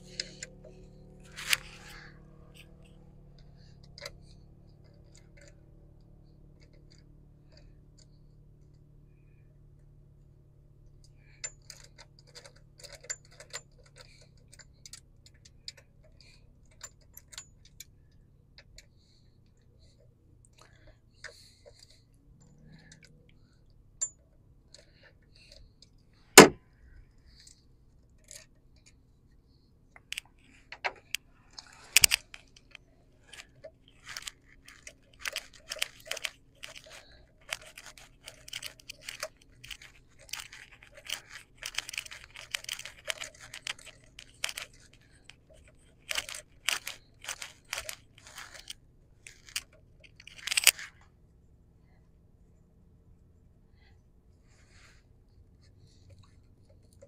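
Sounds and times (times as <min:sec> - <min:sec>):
ratchet wrench clicking: 0:30.8 - 0:51.0.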